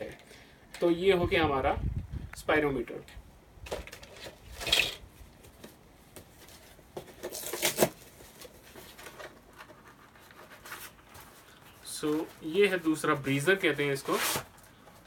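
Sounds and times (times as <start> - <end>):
paper packaging handled and torn: 6.4 - 12.8
loud paper rips: 7.3 - 8.1, 13.9 - 14.7.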